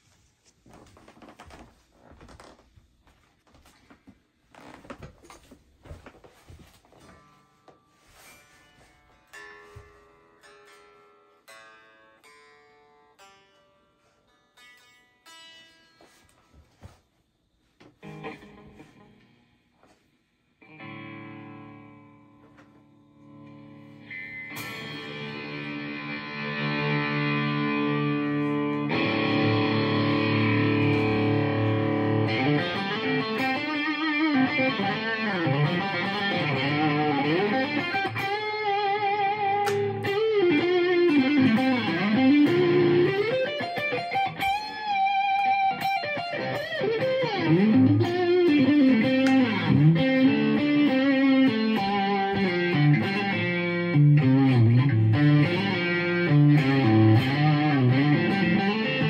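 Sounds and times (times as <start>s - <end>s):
electric guitar through amp: 17.8s - 20.0s, 20.6s - 59.0s
bent guitar notes lead line: 18.0s - 19.3s, 20.6s - 22.6s, 23.2s - 59.0s.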